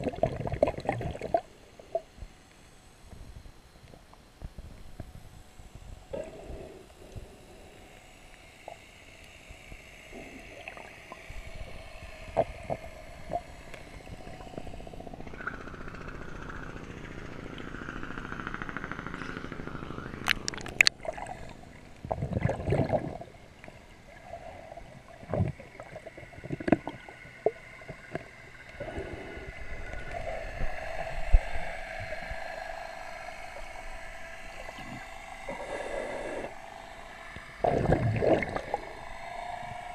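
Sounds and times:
swirling water and bubbles: 0.0 - 2.2, 10.1 - 19.4, 20.0 - 39.9.

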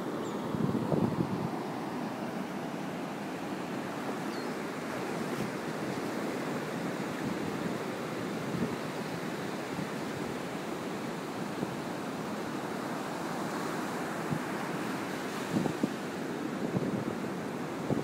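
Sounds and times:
ocean waves on sandy beach: 0.0 - 18.0.

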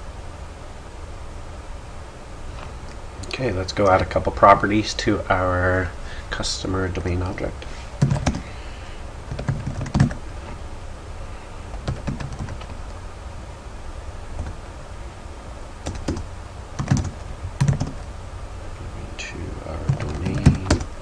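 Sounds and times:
low hum: 0.0 - 21.0
keyboard typing: 8.0 - 8.5, 9.3 - 10.2, 11.7 - 12.8, 15.8 - 18.0, 19.8 - 20.9.

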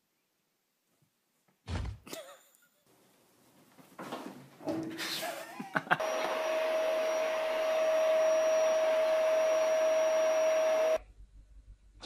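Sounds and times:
electric appliance motor humming: 6.0 - 11.0.

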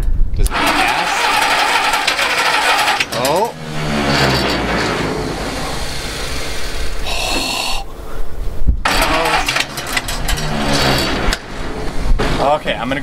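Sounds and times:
engine cranking on starter: 0.4 - 7.0, 8.8 - 12.1.

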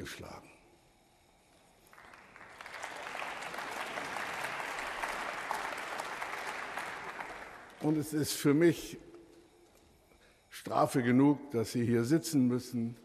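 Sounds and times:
audience applauding: 1.9 - 8.3.

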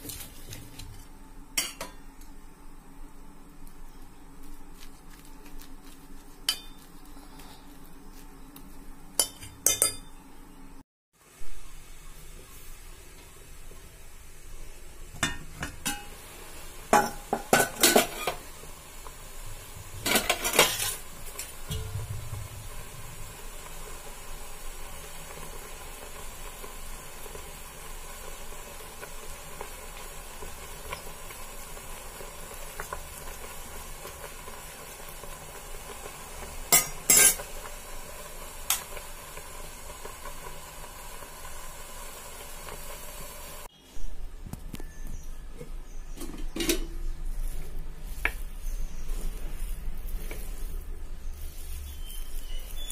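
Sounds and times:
steady low hiss: 0.0 - 52.9
spoon clinking on steel bowl: 9.2 - 10.1.

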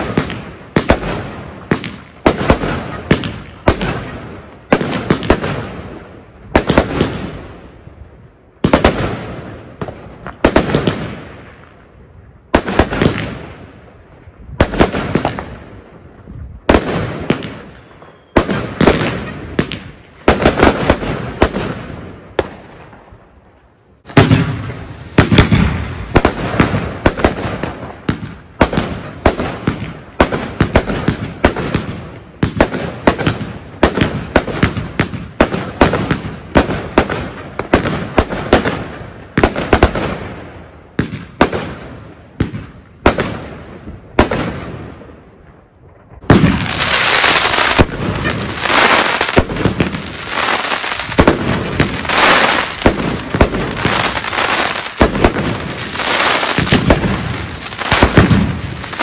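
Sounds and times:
firework crackling: 0.0 - 23.0, 24.0 - 44.8, 46.1 - 59.0
firework bangs: 0.0 - 23.4, 24.0 - 59.0.

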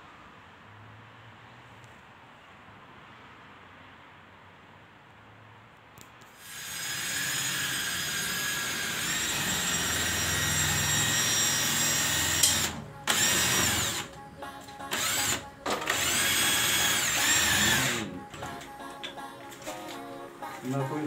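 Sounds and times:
power drill whining: 6.4 - 14.2, 14.8 - 18.6.

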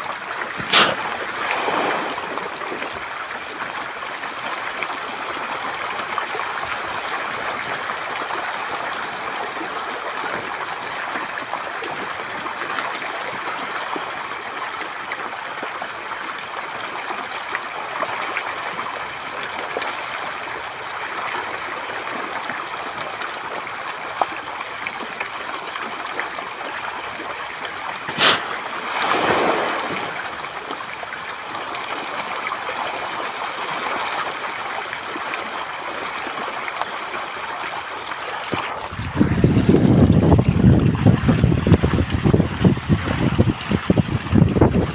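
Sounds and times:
fish splashing in shallow water: 0.0 - 44.9
sharp snap: 0.6 - 1.0, 28.1 - 28.5
short swish: 0.6 - 1.2, 28.1 - 29.8.

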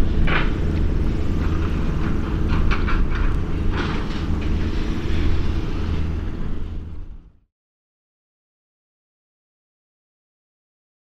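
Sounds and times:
distant engine drone: 0.0 - 7.5.

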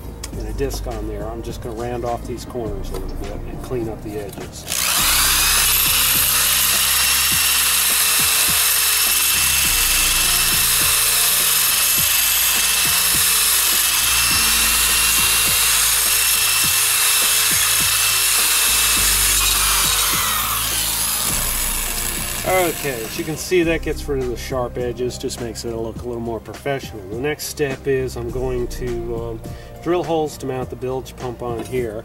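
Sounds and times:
angle grinder grinding metal: 3.0 - 23.7.

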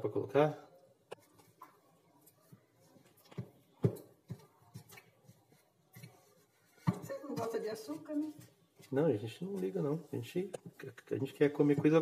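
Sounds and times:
hands kneading dough: 1.0 - 12.0.

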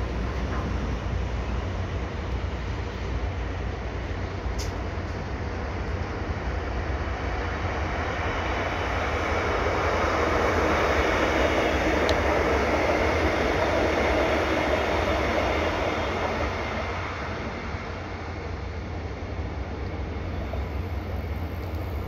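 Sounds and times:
passenger train passing: 0.0 - 22.0.

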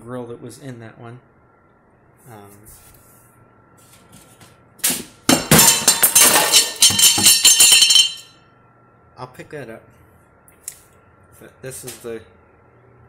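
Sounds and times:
metal parts clattering: 5.3 - 8.3.

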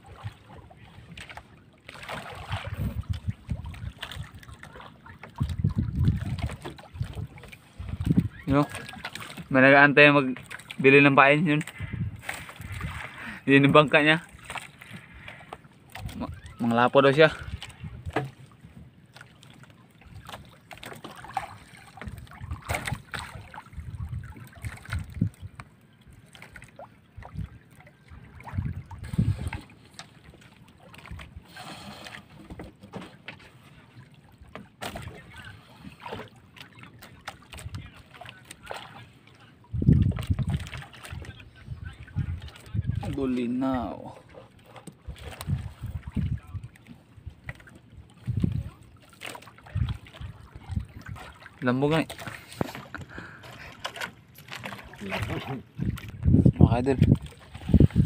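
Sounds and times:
water dripping and splashing: 0.0 - 16.7, 19.1 - 33.4, 35.9 - 41.4, 47.5 - 58.0
wet net hauled over boat side: 1.2 - 3.0, 12.2 - 25.3, 47.5 - 58.0
wind rumbling on microphone: 2.4 - 4.6, 5.2 - 8.9, 11.6 - 13.4, 17.3 - 18.8, 22.0 - 25.6, 27.1 - 27.6, 28.2 - 29.7, 39.6 - 43.4, 45.0 - 48.9, 49.6 - 51.4, 54.9 - 58.0
knocks against wooden hull: 18.0 - 18.5
wet fishing net hauled into boat: 49.2 - 56.2.

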